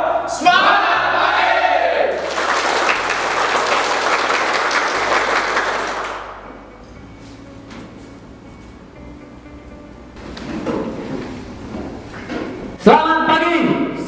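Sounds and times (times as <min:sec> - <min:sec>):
men clapping: 0:02.1 - 0:06.5.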